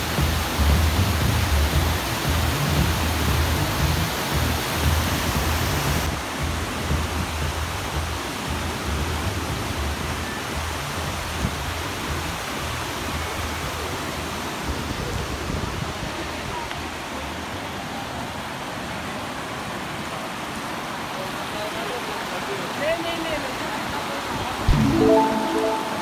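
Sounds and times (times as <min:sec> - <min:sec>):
stream rushing over rocky cascades: 0:00.0 - 0:26.0.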